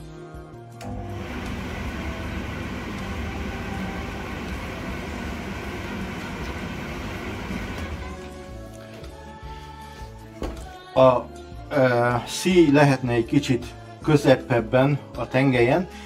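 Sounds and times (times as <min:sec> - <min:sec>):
tumble dryer running: 0:00.8 - 0:08.4.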